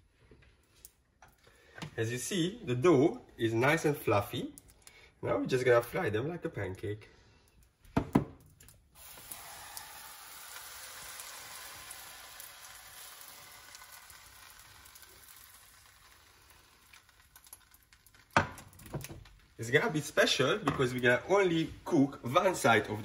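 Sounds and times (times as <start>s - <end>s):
batter sizzling in a frying pan: 8.9s - 19.6s.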